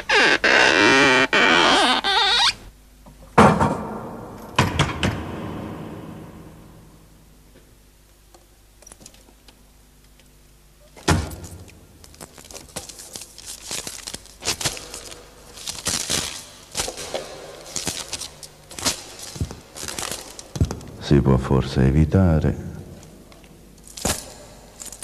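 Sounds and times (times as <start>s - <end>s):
book pages turning and rustling: 12.1s - 20.6s.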